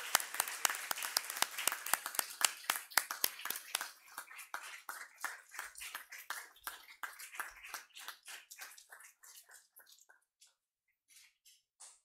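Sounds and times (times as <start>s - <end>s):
audience applause: 0.0s - 4.0s.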